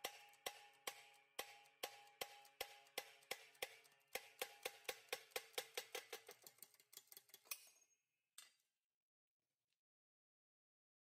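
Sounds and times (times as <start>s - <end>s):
rhythmic metallic clinking: 0.0s - 7.7s.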